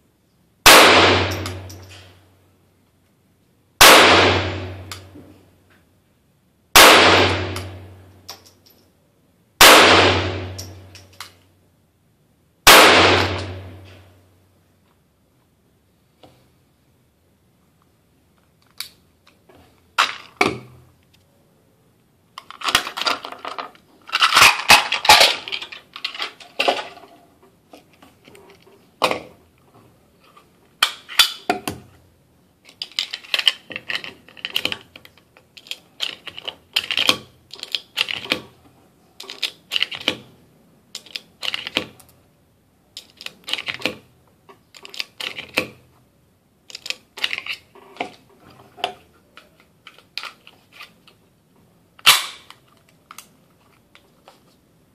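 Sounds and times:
pistol metal clicks and clatter: 1.2 - 2.2, 7.3 - 8.9, 10.4 - 11.5, 22.4 - 27.1, 32.6 - 38.6, 39.2 - 40.3, 40.9 - 42.2, 42.9 - 45.8, 46.6 - 47.7, 49.4 - 51.2, 52.0 - 54.1.

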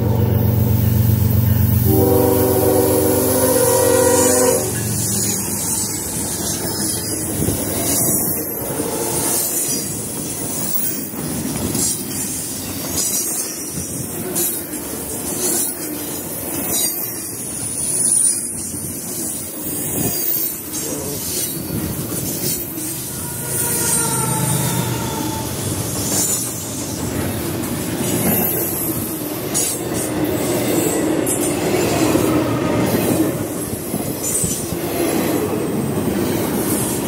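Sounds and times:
train wheels rumbling on rail: 0.0 - 37.0
high wheel squeals: 22.5 - 26.5.

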